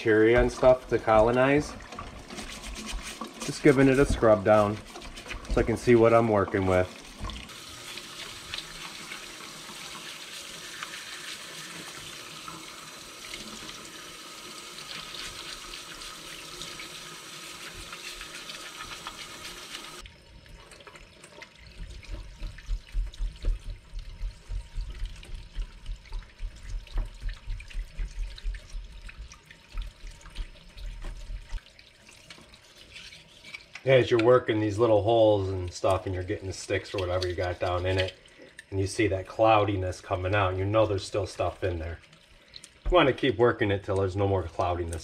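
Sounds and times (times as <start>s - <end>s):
tap water running into a sink: 0.0s - 45.0s
toothbrush scrubbing stone: 2.2s - 7.2s, 14.9s - 20.0s, 32.2s - 33.8s.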